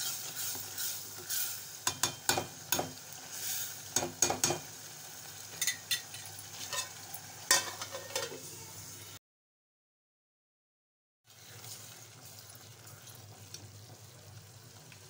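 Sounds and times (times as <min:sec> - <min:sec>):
metal lid clinking on pot: 0:05.6 - 0:08.4
metal ladle scraping a pot: 0:06.6 - 0:08.4.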